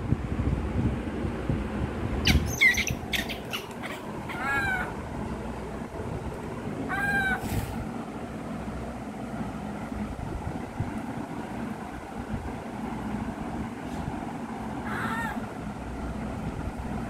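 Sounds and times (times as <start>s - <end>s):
baby monkey squeaks: 2.2s - 4.9s
baby monkey high-pitched cries: 2.2s - 5.0s, 6.9s - 7.5s, 14.8s - 15.5s.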